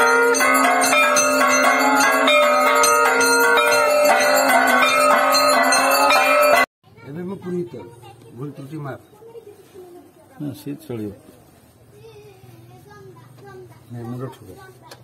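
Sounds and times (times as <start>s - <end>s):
brass bell ringing: 0.0s - 6.7s.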